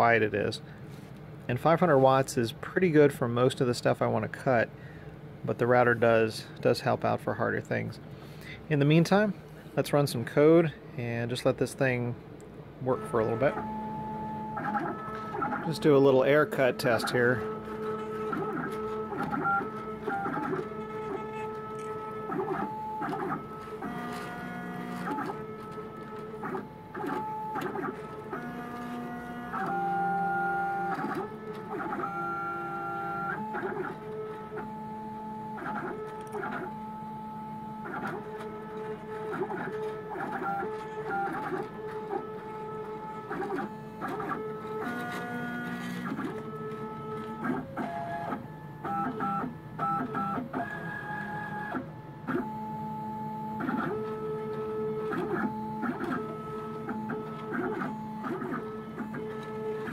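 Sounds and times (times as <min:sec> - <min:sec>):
stepper motors whining: 0:13.0 - 0:48.2.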